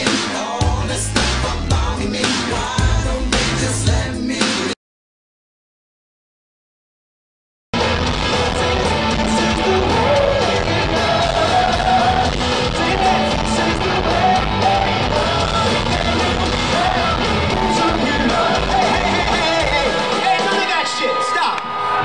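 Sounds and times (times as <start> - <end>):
drums: 0.0 - 4.8, 7.8 - 22.0
person singing lead vocal: 0.0 - 4.8, 8.0 - 20.9
live rock band playing: 7.8 - 21.3
electric guitars: 7.8 - 22.0.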